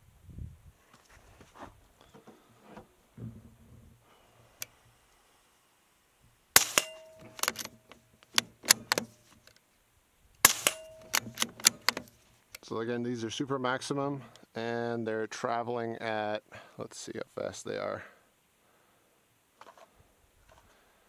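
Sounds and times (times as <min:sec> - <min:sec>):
suppressed rifle shots: 0:06.6 - 0:07.8, 0:10.4 - 0:12.0
rifle bolt clicks: 0:06.6 - 0:09.6, 0:10.4 - 0:12.1
handling noises: 0:06.6 - 0:09.7, 0:10.4 - 0:12.6.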